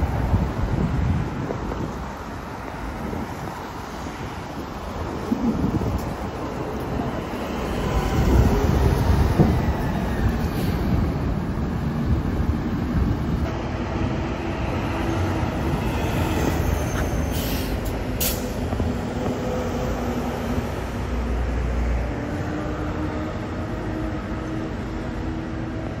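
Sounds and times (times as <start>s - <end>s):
vehicle rumble: 0.0s - 26.0s.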